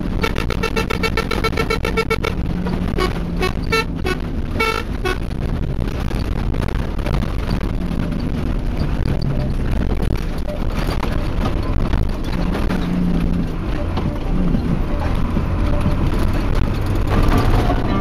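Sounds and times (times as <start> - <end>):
truck horn tooting: 0.0 - 5.4
truck engine rumble: 0.0 - 18.0
tyres on gravel: 0.0 - 18.0.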